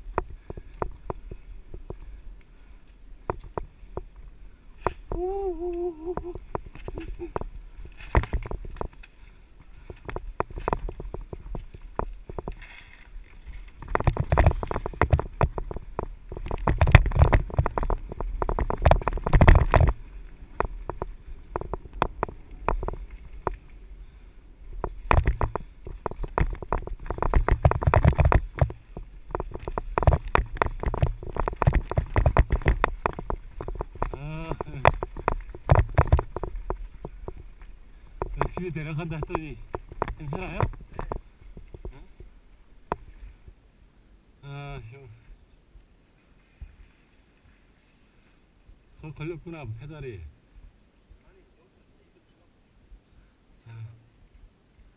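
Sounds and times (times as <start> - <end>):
mountain bike clattering: 9.7 - 23.8, 24.7 - 42.1.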